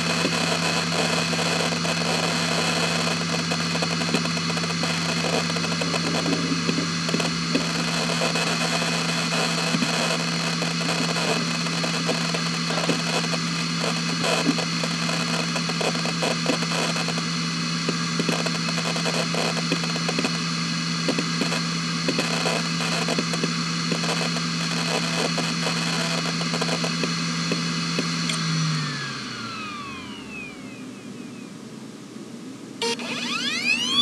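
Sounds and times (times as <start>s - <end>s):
hard drive seek clicks: 0.0s - 28.5s
hard drive spinning down: 0.0s - 31.7s, 32.8s - 34.0s
hard drive spindle whine: 0.0s - 34.0s.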